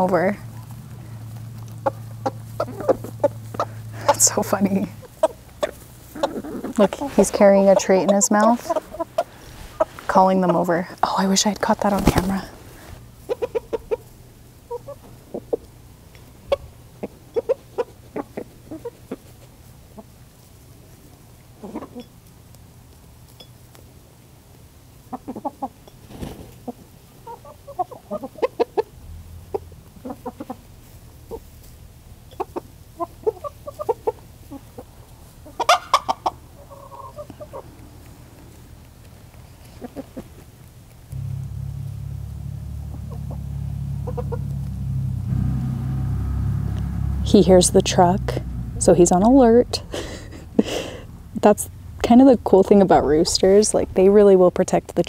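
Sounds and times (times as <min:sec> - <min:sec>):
chickens clucking: 0:00.0 - 0:20.3, 0:21.6 - 0:22.1, 0:25.0 - 0:31.6, 0:32.3 - 0:40.6, 0:42.7 - 0:44.8
low truck engine rumble: 0:00.0 - 0:21.5, 0:28.8 - 0:39.4, 0:40.7 - 0:55.0.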